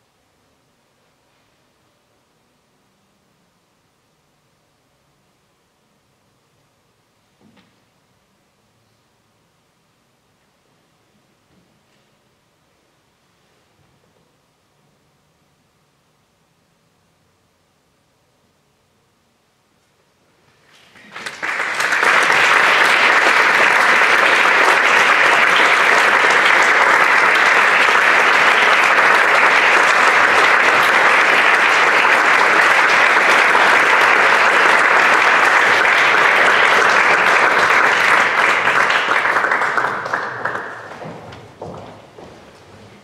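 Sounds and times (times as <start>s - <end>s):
audience applauding: 20.7s - 42.2s.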